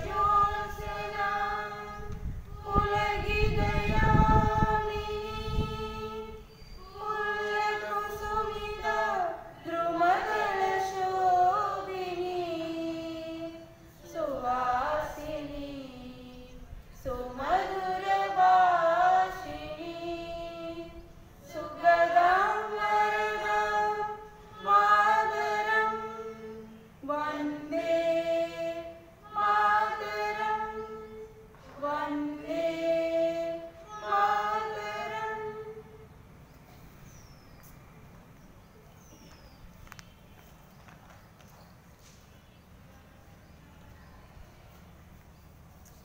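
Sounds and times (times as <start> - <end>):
woman singing unaccompanied: 0.0 - 36.1.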